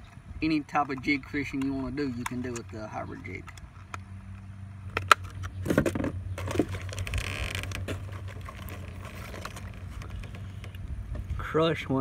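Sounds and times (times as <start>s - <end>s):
sharp plastic clicks: 0.8s - 8.8s
plastic rustling and scraping: 5.0s - 10.8s.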